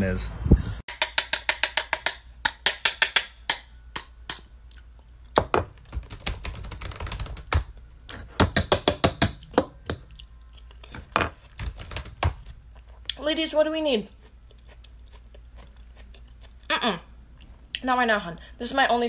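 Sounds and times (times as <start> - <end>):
typing on laptop keyboard: 5.9 - 7.7, 11.6 - 12.4.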